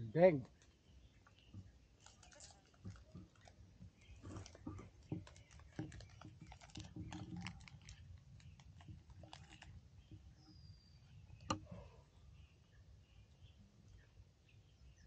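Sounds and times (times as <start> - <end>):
wafer bar being eaten: 2.0 - 9.8
wrapper crackling: 2.0 - 9.8.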